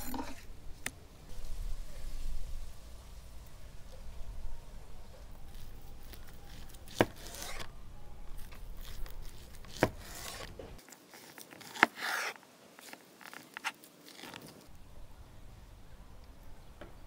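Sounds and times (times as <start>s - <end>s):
scraping on cutting board: 6.5s - 7.7s, 8.8s - 12.4s.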